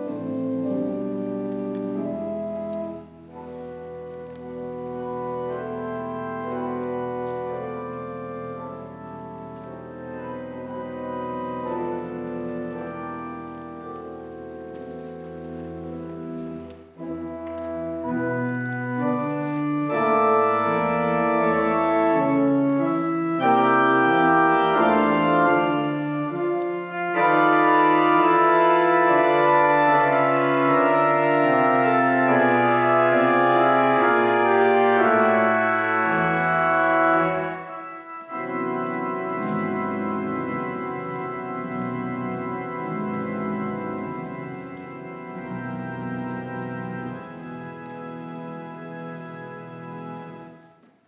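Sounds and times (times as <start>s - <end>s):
pipe organ chords: 0.0s - 51.0s
organ pedal bass notes: 17.4s - 50.5s.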